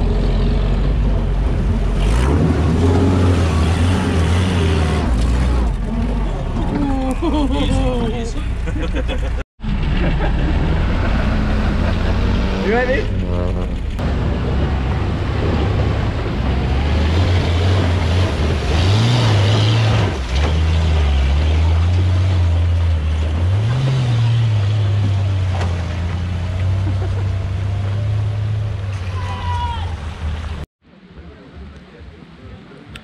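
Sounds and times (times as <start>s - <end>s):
vehicle engine revving: 0.0s - 6.7s, 9.6s - 29.0s.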